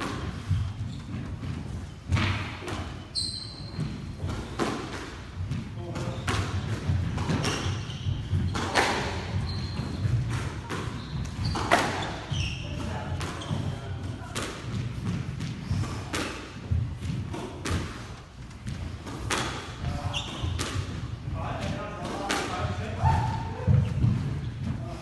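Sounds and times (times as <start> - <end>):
shoes squeaking on wooden floor: 0.0 - 4.6, 5.5 - 14.0, 19.8 - 20.9.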